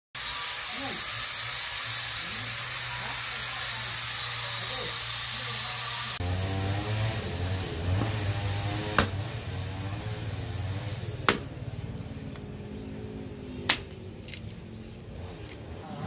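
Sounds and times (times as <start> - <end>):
hatchet chopping log: 7.9 - 9.2, 11.2 - 11.6, 13.7 - 14.4.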